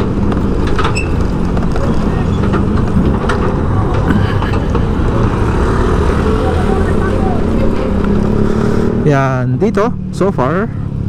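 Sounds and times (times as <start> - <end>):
engine hum: 0.0 - 11.0
vehicle road noise rumble: 0.0 - 11.0.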